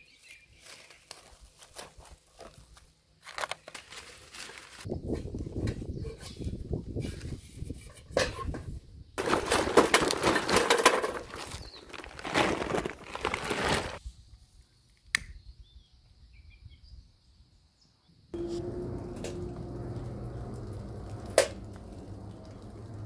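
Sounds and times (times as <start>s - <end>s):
charcoal briquettes clattering into metal: 7.9s - 14.0s.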